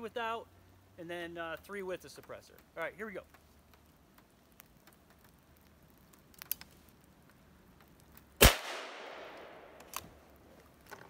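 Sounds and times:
raindrops hitting a table: 1.5s - 8.4s, 9.2s - 11.0s
air rifle shot: 8.4s - 9.9s.

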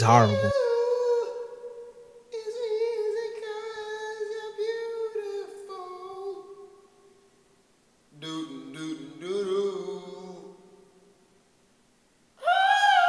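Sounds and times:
boy singing in a high voice: 0.0s - 1.5s.

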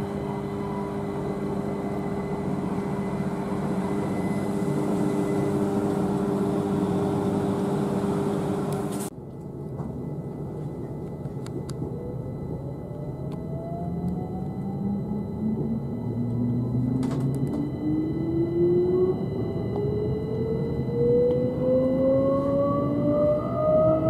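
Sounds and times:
traction motor whine: 0.0s - 9.1s, 11.9s - 24.0s
wheel and rail rumble: 0.0s - 9.1s
electric train hum: 0.0s - 24.0s.

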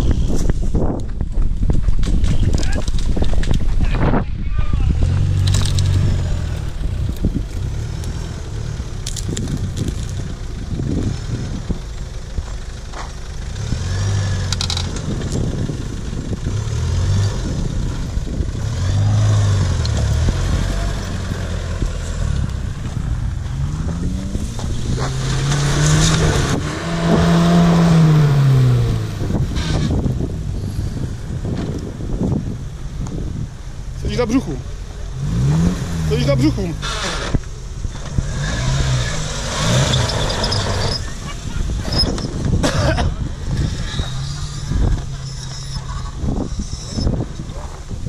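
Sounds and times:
off-road engines pulling slowly: 0.0s - 48.0s
engine revving: 4.8s - 11.9s, 13.4s - 31.1s, 34.0s - 47.5s
tyres crunching over gravel: 4.9s - 13.3s, 17.4s - 30.2s
branches cracking and scraping: 5.2s - 8.2s, 9.0s - 10.2s.

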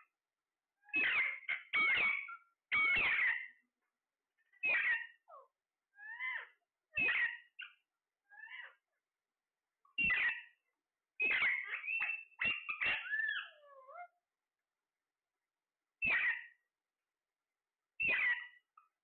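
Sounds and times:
parakeets squawking: 0.9s - 3.5s, 4.6s - 5.2s, 6.1s - 7.7s, 8.4s - 8.7s, 10.0s - 10.4s, 11.2s - 14.0s, 16.0s - 16.5s, 18.0s - 18.6s.

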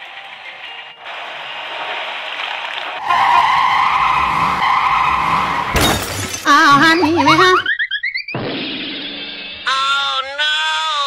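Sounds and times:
skid-like screech: 1.1s - 7.7s
cartoon vehicle noise: 1.7s - 8.8s.

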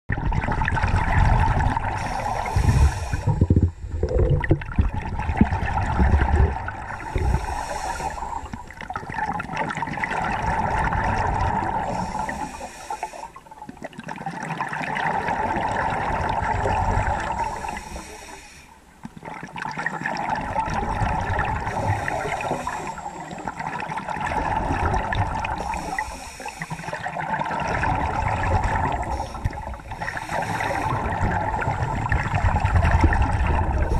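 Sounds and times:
exhaled air bubbling: 0.1s - 33.9s
regulator inhale hiss: 1.9s - 3.8s, 6.9s - 8.8s, 11.8s - 13.6s, 16.7s - 19.0s, 21.6s - 23.8s, 25.5s - 27.1s, 29.0s - 31.8s.

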